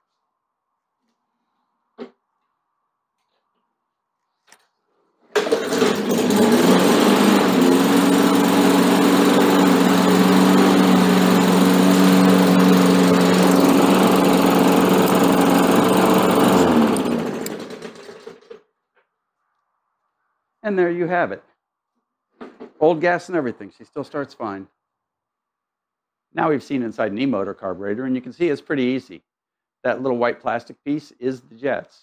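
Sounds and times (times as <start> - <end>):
lawn mower engine running: 5.3 - 18.6
engine spinning down: 5.4 - 18.5.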